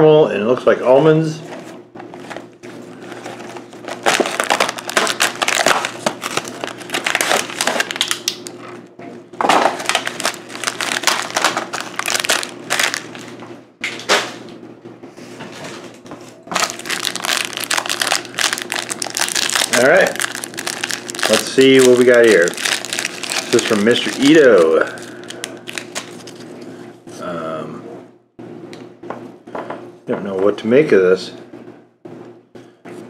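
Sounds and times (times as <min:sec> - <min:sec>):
plastic tray crinkling: 0:03.2 - 0:08.6, 0:09.5 - 0:13.3, 0:16.5 - 0:26.5.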